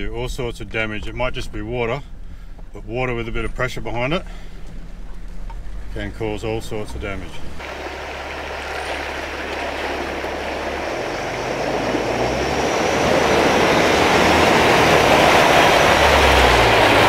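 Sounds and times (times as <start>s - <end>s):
vehicle engine running low: 0.0s - 17.0s
water splashing: 7.5s - 17.0s.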